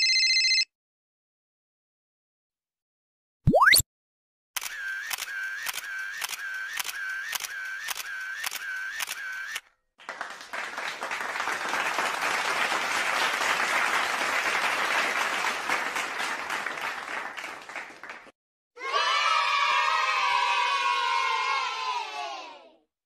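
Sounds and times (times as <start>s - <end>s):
camera shutter clicking: 4.6s - 9.6s
crowd applauding: 10.0s - 18.4s.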